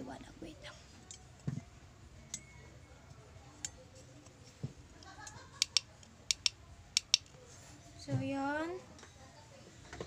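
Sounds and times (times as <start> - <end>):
fingers tapping phone: 5.6 - 7.3.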